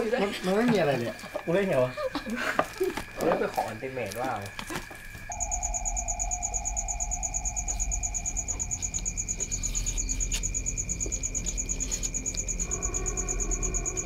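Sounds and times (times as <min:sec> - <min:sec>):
crickets chirping: 0:00.0 - 0:14.0
steady low hum: 0:00.0 - 0:14.0.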